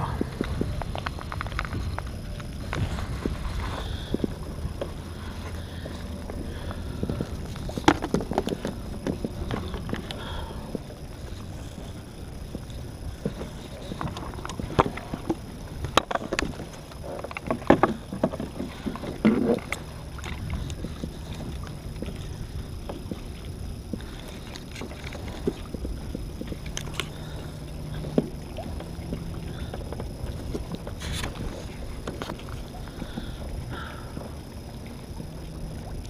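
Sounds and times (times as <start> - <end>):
fishing gear knocking and clattering: 0.3 - 11.9.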